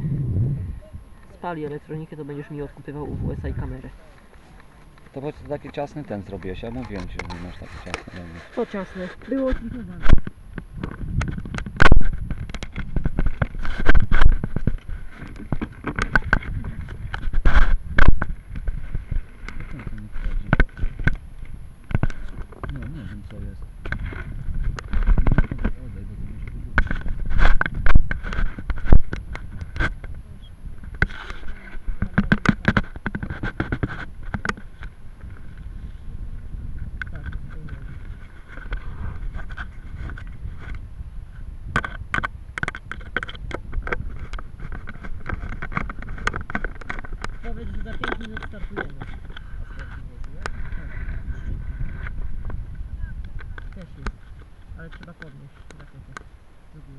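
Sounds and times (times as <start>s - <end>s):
camera handling knocks and scraping: 4.2s - 19.8s, 23.8s - 25.8s, 26.4s - 30.2s, 30.8s - 35.7s, 36.9s - 40.8s, 41.7s - 50.9s.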